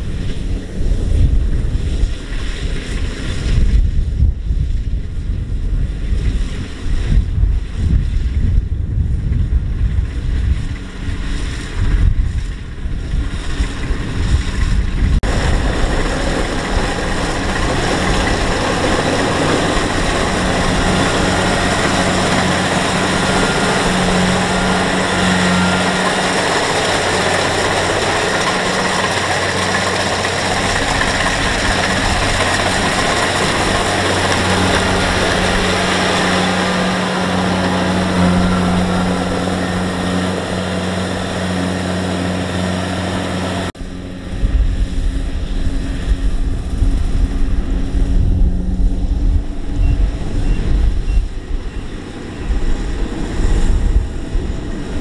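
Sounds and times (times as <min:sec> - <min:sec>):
combine harvester diesel engine: 0:09.8 - 0:55.0.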